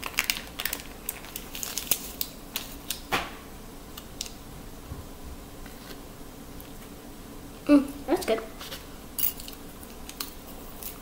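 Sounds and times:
seasoning packet crinkling: 0:00.0 - 0:03.0.

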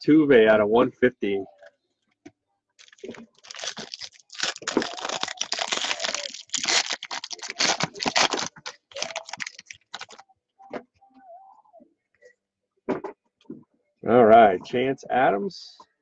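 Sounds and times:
foil pack crinkling and ripping: 0:02.8 - 0:10.2
wrapper peeled off cards: 0:02.8 - 0:10.2.

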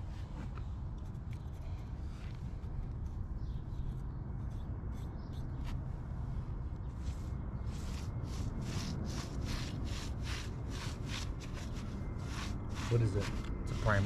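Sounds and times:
brush scraping on brick: 0:07.7 - 0:14.0.

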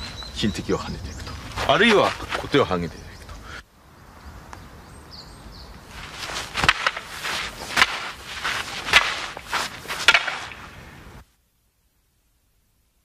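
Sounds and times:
footsteps and shuffling: 0:00.0 - 0:02.8, 0:05.9 - 0:10.8
sharp steps: 0:01.2 - 0:02.6, 0:05.9 - 0:10.8.

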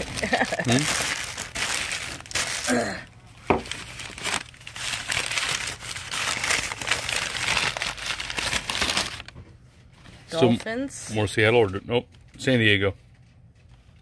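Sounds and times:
paper bag crumpling: 0:00.0 - 0:02.7, 0:03.6 - 0:09.3.

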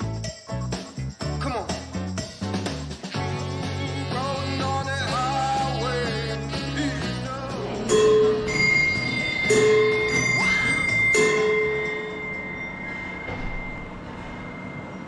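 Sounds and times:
bell-like chime ringing: 0:07.8 - 0:15.0.

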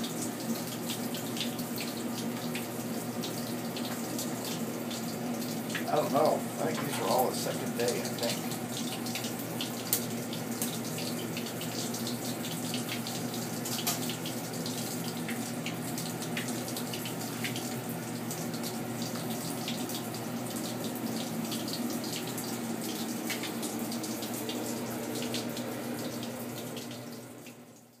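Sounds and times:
tap water running into tray: 0:00.0 - 0:28.0
faint steady hum: 0:04.1 - 0:10.3
small splashes and clicks: 0:07.9 - 0:12.1, 0:12.8 - 0:17.8.

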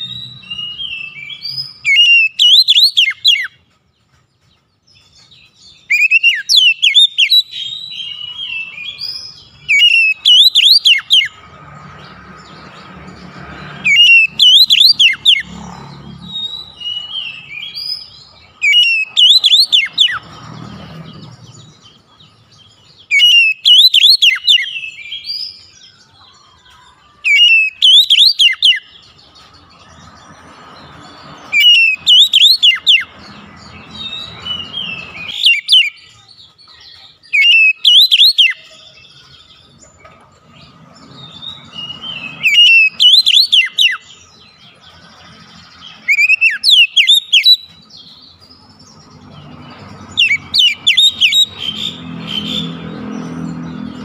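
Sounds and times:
bird singing whistled phrases: 0:00.0 - 0:03.6, 0:05.7 - 0:11.4, 0:13.9 - 0:15.5, 0:16.3 - 0:20.2, 0:23.1 - 0:25.7, 0:27.3 - 0:29.0, 0:31.5 - 0:33.1, 0:34.0 - 0:36.2, 0:36.8 - 0:39.3, 0:41.3 - 0:44.2, 0:46.0 - 0:47.8, 0:50.2 - 0:52.7.

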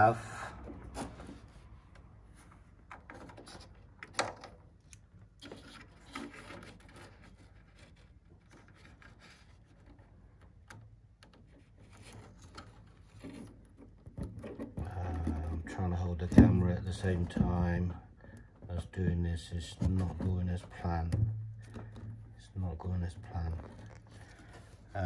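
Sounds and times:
rubbing and scraping on wood: 0:05.4 - 0:10.6, 0:11.2 - 0:25.0
connector clicks and knocks: 0:21.0 - 0:22.2.

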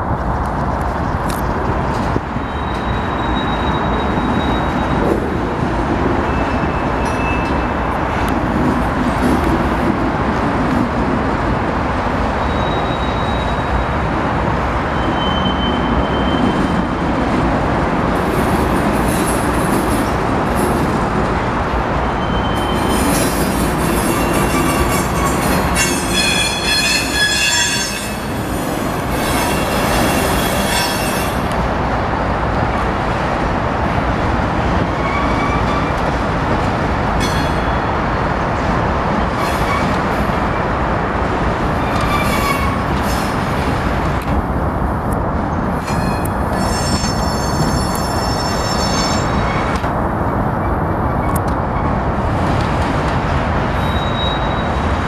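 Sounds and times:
train cars rolling rumble: 0:00.0 - 0:55.0
squealing train wheels: 0:02.0 - 0:05.4, 0:06.1 - 0:08.1, 0:12.3 - 0:14.1, 0:14.8 - 0:17.0, 0:22.0 - 0:31.6, 0:34.8 - 0:36.2, 0:39.2 - 0:40.5, 0:41.8 - 0:43.5, 0:45.8 - 0:49.9, 0:53.7 - 0:55.0.

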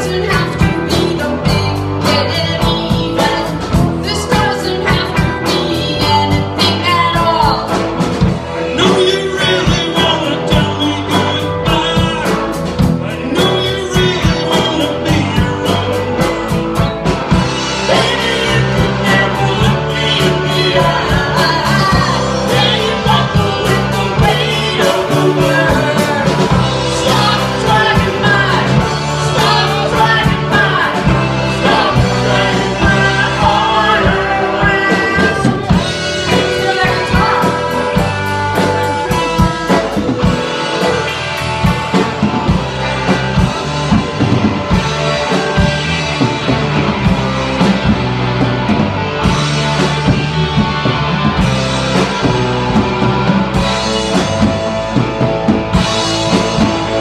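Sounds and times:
woman singing lead: 0:00.0 - 0:43.5
bass guitar: 0:00.0 - 0:57.0
drum kit beat: 0:00.0 - 0:57.0
electric guitars: 0:00.0 - 0:57.0
keyboard: 0:00.0 - 0:57.0.

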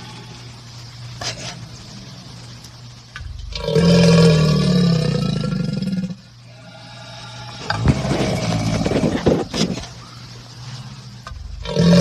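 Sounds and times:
alligator growling: 0:03.4 - 0:09.8, 0:11.5 - 0:12.0.

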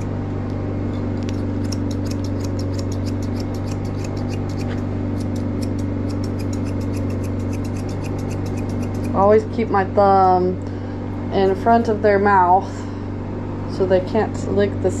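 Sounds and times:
low machine hum: 0:00.0 - 0:15.0
scissors snipping fur: 0:01.2 - 0:09.4.

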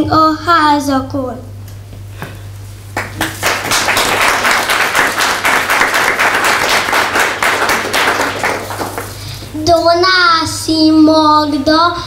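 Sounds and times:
audience applauding: 0:03.0 - 0:09.3.

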